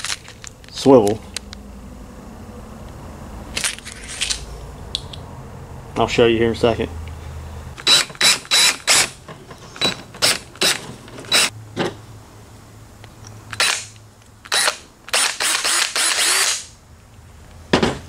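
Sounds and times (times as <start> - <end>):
cordless drill drilling plastic pipe: 7.8 - 9.1, 9.8 - 11.5, 14.5 - 16.6.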